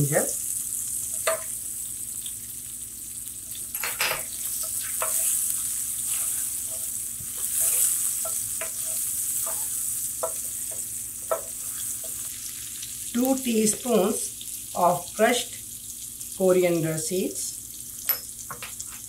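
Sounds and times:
spices sizzling in hot oil: 0:00.0 - 0:19.0
wooden spatula scraping pan: 0:04.6 - 0:12.3.

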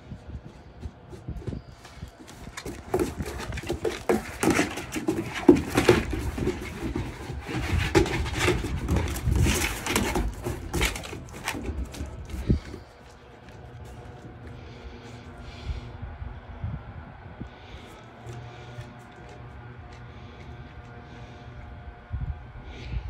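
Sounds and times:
puppies scuffling: 0:00.1 - 0:15.7, 0:17.6 - 0:21.5
puppies growling: 0:02.4 - 0:15.6, 0:17.6 - 0:21.7.

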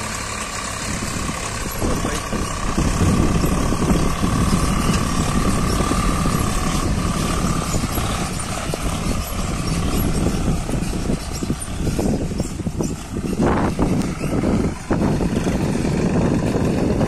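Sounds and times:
diesel tractor engine working: 0:00.0 - 0:17.0.

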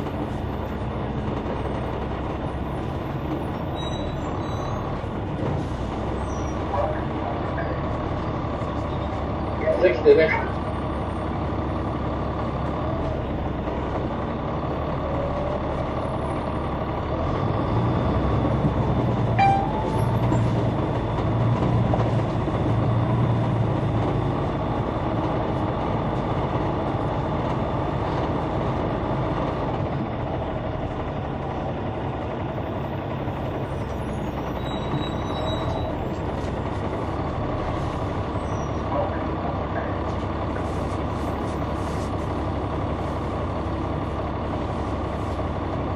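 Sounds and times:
bus diesel engine running: 0:00.0 - 0:45.9.

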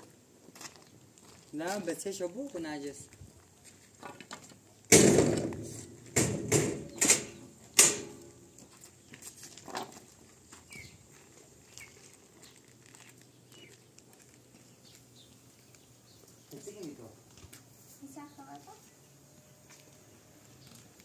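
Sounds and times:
loud thumps: 0:04.9 - 0:08.3.

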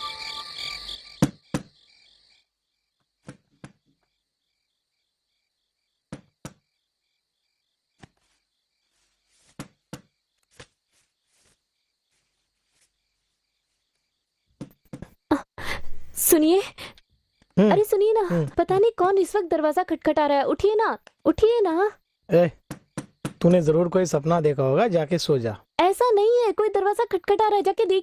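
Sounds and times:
faint cricket chirring: 0:00.0 - 0:28.0
knocking on a wooden door: 0:22.6 - 0:23.5.

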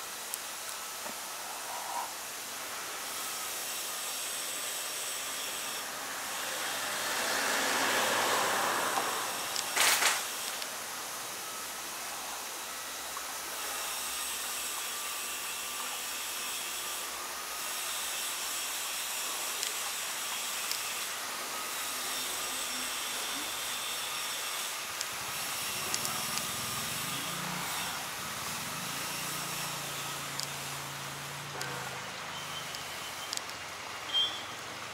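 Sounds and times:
outdoor background hiss: 0:00.0 - 0:34.9
faint high thin tones: 0:31.5 - 0:33.4.

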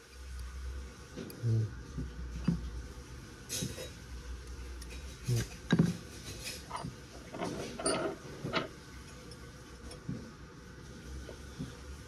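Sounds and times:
small metal parts clinking: 0:06.6 - 0:08.7.

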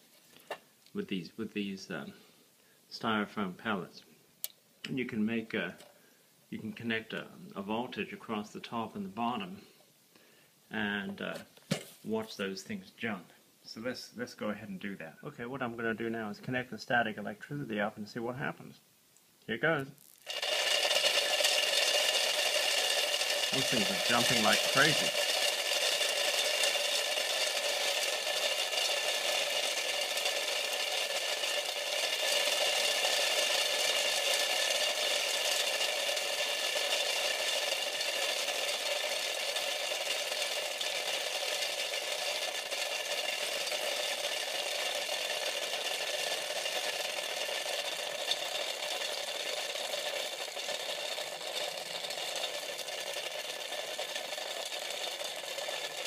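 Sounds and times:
steady electrical hum: 0:00.0 - 0:56.0
pellets rattling against plastic and metal: 0:20.2 - 0:56.0.

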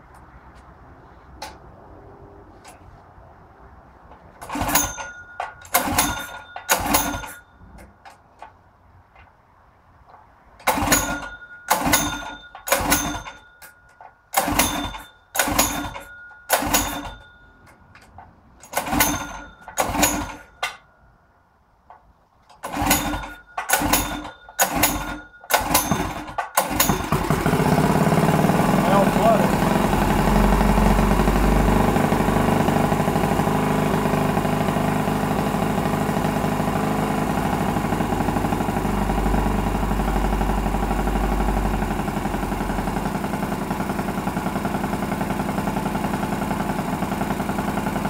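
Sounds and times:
engine running: 0:03.6 - 0:08.5, 0:10.6 - 0:13.4, 0:22.5 - 0:48.0
engine cranking: 0:04.1 - 0:09.3, 0:10.1 - 0:20.8, 0:21.9 - 0:48.0.

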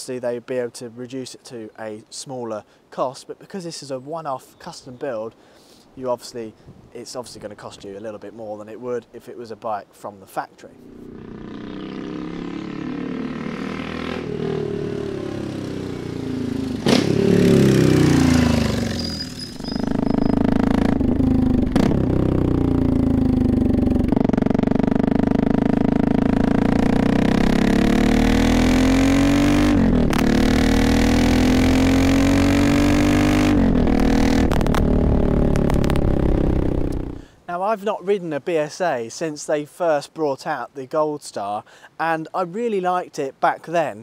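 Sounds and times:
motorcycle engine revving: 0:10.8 - 0:37.3.

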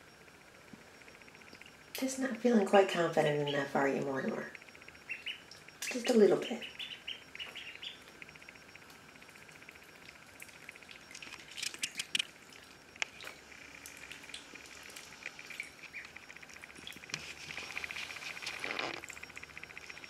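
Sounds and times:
ducklings peeping: 0:05.0 - 0:08.2, 0:15.4 - 0:17.1.

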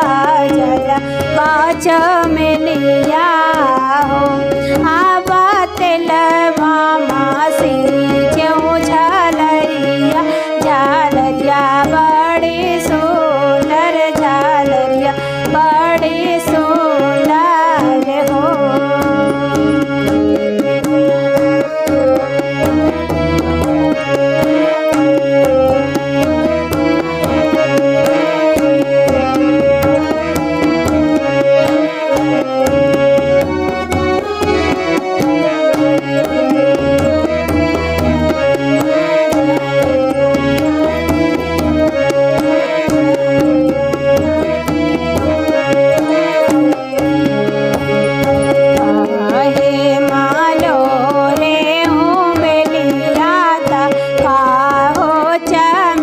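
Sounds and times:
hand drum steady quick beat: 0:00.0 - 0:56.0
harmonium playing folk tune: 0:00.0 - 0:56.0
woman singing: 0:00.0 - 0:56.0.

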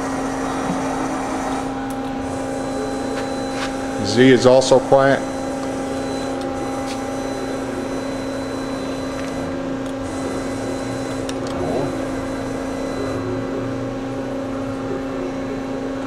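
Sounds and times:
machine humming: 0:00.0 - 0:16.0.

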